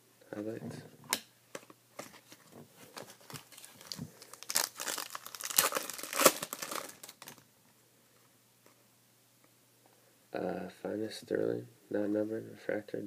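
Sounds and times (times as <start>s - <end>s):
foil wrapper tearing and crinkling: 3.2s - 7.4s.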